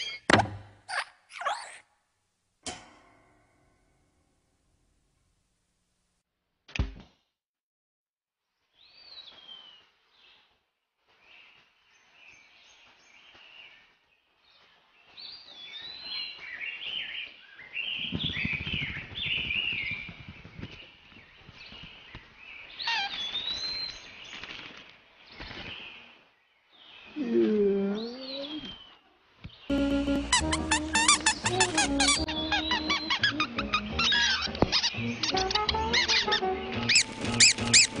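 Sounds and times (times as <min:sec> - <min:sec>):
wings fluttering: 0:17.8 - 0:26.2, 0:34.0 - 0:38.0
cartoon birds chirping: 0:30.2 - 0:38.0.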